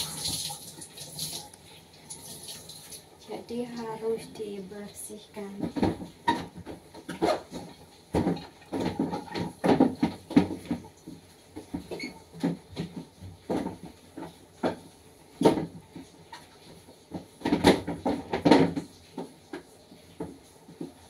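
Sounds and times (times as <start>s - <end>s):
containers knocking in refrigerator: 5.6s - 10.9s, 17.4s - 18.9s.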